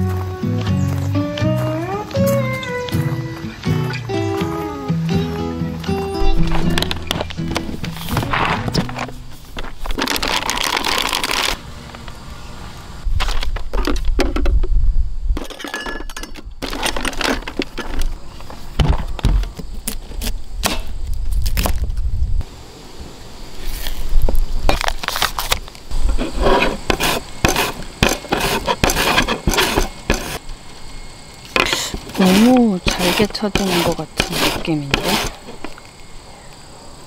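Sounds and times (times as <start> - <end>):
utensils clinking and knocking: 15.4 - 18.1, 31.6 - 35.7
cucumber rubbed on plastic grater: 26.2 - 30.4, 32.0 - 35.4
knife cutting on cutting board: 32.1 - 35.4.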